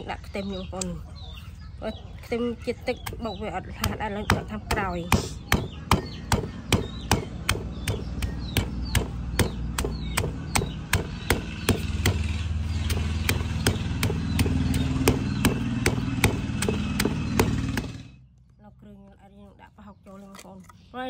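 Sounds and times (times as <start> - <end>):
low motor hum: 0.0 - 20.9
pestle pounding in a mortar: 3.0 - 18.0.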